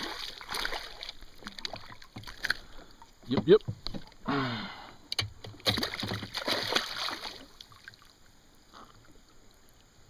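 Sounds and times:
fish splashing at surface: 5.6s - 7.9s.

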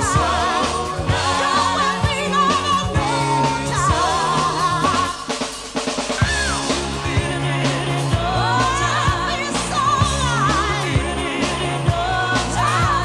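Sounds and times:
bass guitar: 0.0s - 13.0s
drum kit: 0.0s - 13.0s
woman singing with vibrato: 1.4s - 5.3s, 8.2s - 10.9s.

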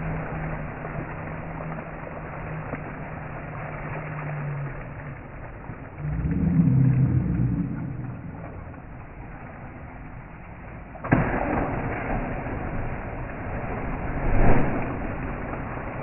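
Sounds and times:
low rumble: 0.0s - 11.1s
low steady hum: 0.0s - 16.0s
water splashing in a pool: 0.0s - 16.0s.

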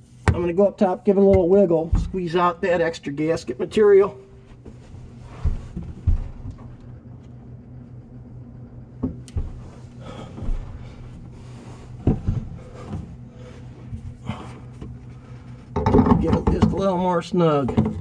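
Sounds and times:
steady low hum: 0.0s - 18.0s
knocks and rustles of handling: 4.4s - 7.0s, 9.0s - 18.0s.

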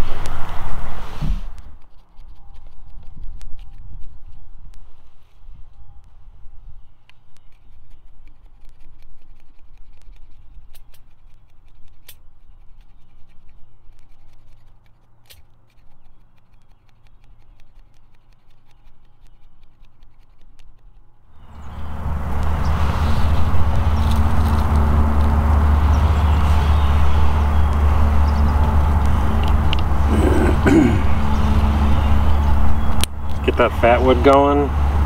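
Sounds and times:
loud rushing noise: 0.0s - 1.8s, 21.4s - 35.0s
knife scraping wood shavings: 7.4s - 20.6s.

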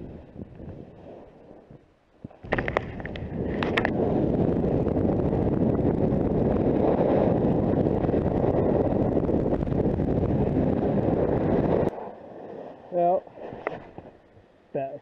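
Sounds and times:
wind rushing on microphone: 0.0s - 14.5s
snowboard sliding over snow: 0.0s - 14.9s.

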